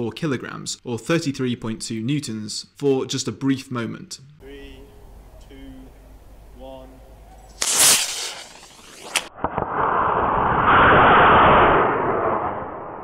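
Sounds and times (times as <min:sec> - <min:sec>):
sharp crack: 0:07.5 - 0:13.0
rushing hiss: 0:07.6 - 0:09.3
rocket motor burst: 0:07.6 - 0:13.0.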